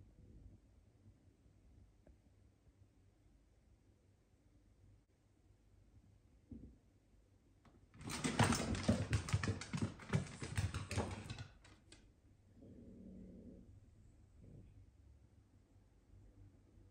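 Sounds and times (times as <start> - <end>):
pet claws clicking on wooden floor: 8.0 - 11.9.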